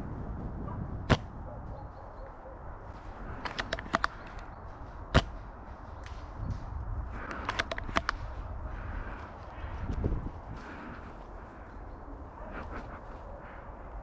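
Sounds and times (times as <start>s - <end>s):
light clicks: 3.3s - 4.6s, 6.0s - 8.4s
airsoft gun shots: 3.4s - 4.3s, 5.1s - 5.4s.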